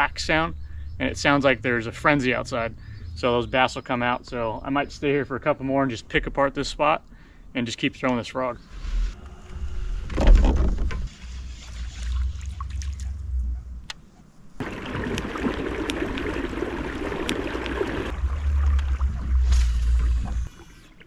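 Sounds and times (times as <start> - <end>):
low water rumbling: 8.6 - 21.0
water rushing and splashing: 11.6 - 13.3, 14.6 - 21.0.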